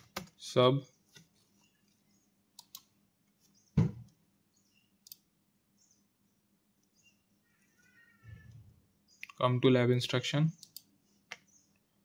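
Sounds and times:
computer mouse clicks: 2.5s - 2.9s, 5.0s - 5.3s, 10.6s - 11.5s.

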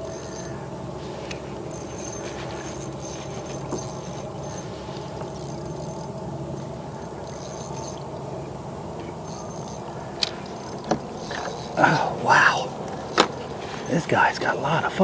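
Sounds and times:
reel clicks: 0.0s - 0.6s, 1.2s - 8.2s, 9.1s - 12.0s, 12.9s - 13.9s
fishing reel whirring: 0.0s - 8.3s, 9.1s - 14.2s.

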